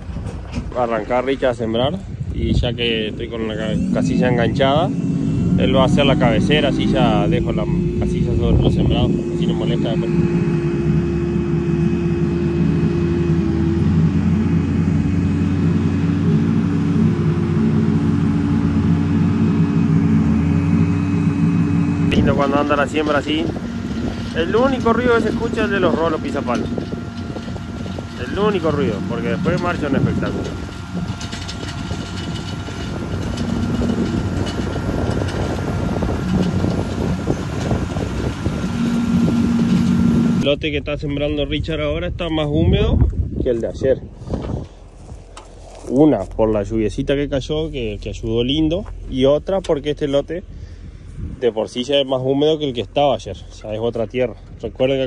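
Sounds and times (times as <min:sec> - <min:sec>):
vehicle engine drone: 0:00.0 - 0:55.0
planter rollers clattering: 0:05.5 - 0:40.5.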